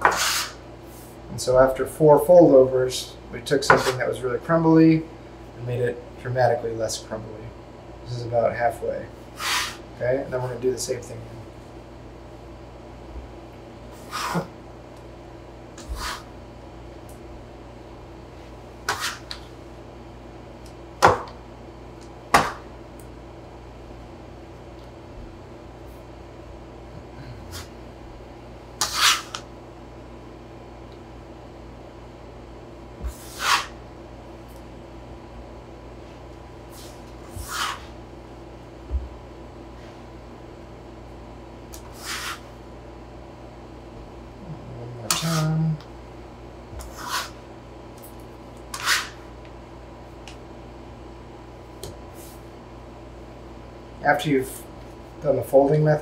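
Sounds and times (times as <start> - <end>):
metal scraper on wooden counter: 0.0 - 0.6, 3.7 - 4.0, 18.9 - 19.4, 28.8 - 29.4, 33.1 - 33.8, 36.8 - 37.9, 41.9 - 42.5, 46.8 - 47.4, 48.7 - 49.2
steady low hum: 0.0 - 56.0.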